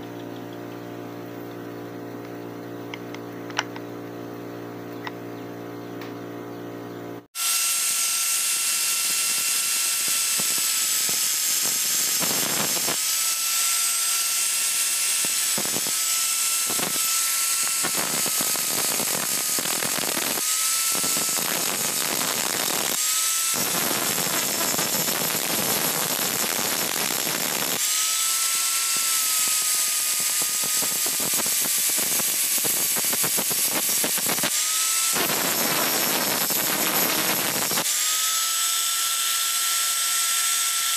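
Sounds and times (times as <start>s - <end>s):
angle grinder grinding steel: 7.4s - 40.9s.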